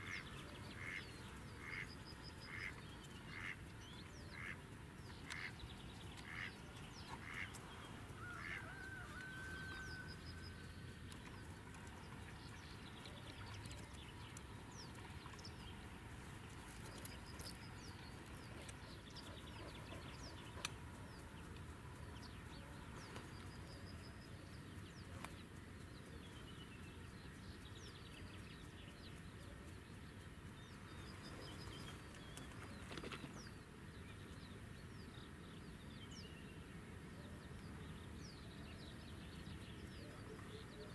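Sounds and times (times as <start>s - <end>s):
ducks quacking: 0.0s - 3.6s, 4.3s - 4.6s, 5.2s - 5.6s, 6.2s - 7.6s, 8.2s - 8.8s
songbirds chirping: 0.0s - 40.9s.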